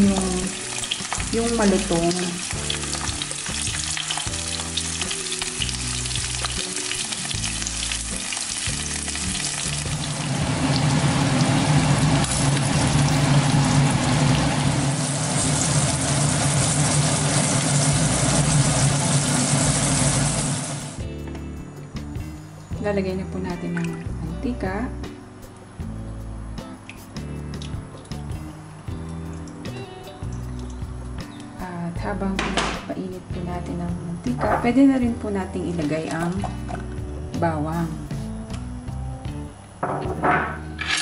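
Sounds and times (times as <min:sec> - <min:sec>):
fish frying in hot oil: 0:00.0 - 0:21.0.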